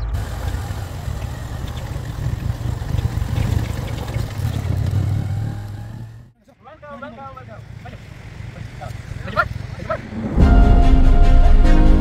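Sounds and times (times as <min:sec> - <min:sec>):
wind rushing over microphone: 0:00.0 - 0:06.3
motorcycle engine running: 0:00.0 - 0:06.4.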